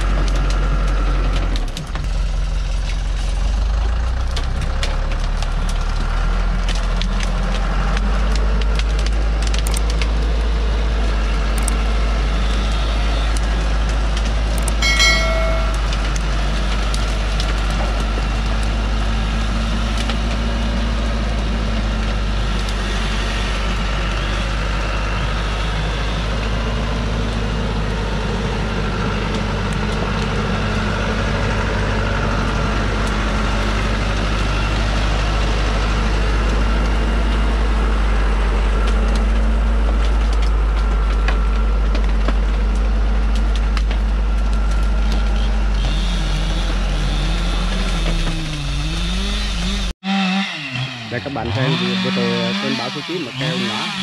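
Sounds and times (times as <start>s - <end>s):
truck diesel engine under load: 0.0s - 54.0s
brief shrill tone: 14.8s - 16.0s.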